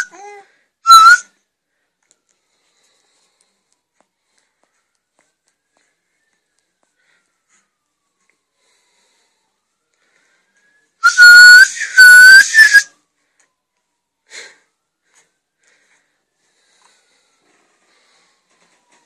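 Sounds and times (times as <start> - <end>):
person whistling: 0.9 - 1.3, 10.6 - 12.9.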